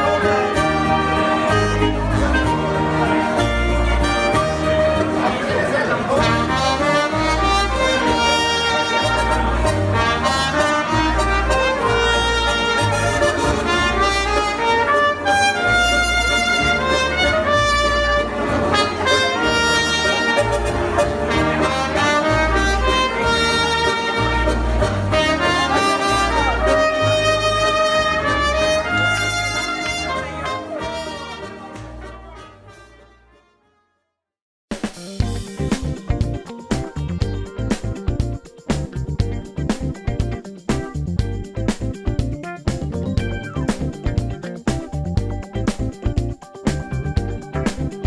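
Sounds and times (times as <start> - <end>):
saxophone: 0.0 - 5.4, 6.1 - 33.8
electric keyboard: 0.0 - 33.2, 35.0 - 48.0
held bass notes: 0.0 - 33.4, 35.2 - 48.0
trumpet: 0.0 - 34.1.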